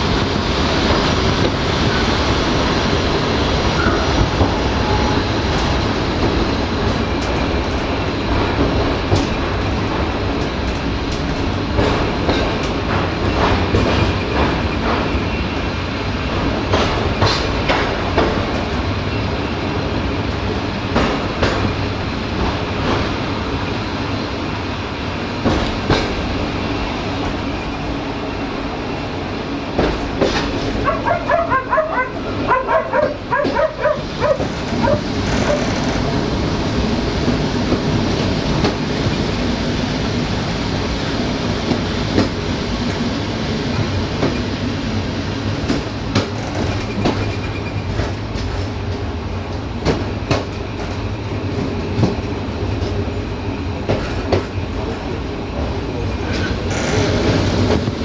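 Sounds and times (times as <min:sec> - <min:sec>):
train rumbling on track: 0:00.0 - 0:58.0
wheels clacking over rail joints: 0:03.7 - 0:15.4, 0:29.8 - 0:39.2, 0:45.5 - 0:53.2.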